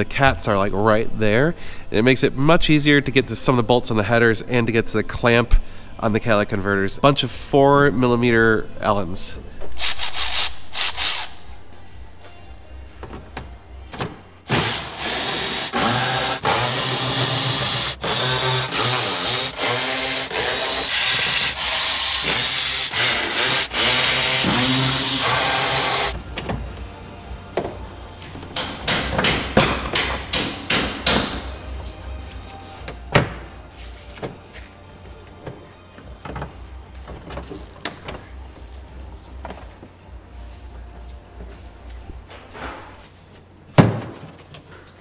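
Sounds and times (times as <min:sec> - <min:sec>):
cordless drill running in bursts: 0:14.5 - 0:26.2.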